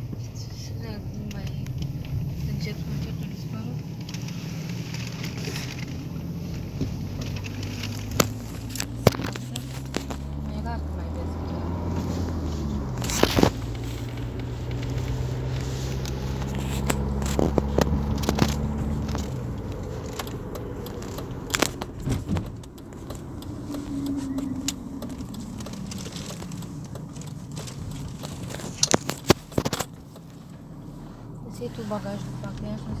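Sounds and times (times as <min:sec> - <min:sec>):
car engine hum from cabin: 0:00.0 - 0:33.0
road noise: 0:00.0 - 0:33.0
clicks and rattles: 0:14.8 - 0:30.4.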